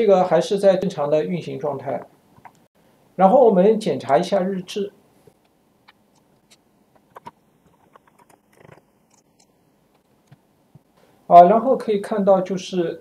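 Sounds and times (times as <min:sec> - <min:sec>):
mouse and keyboard clicks: 0:05.4 - 0:09.5.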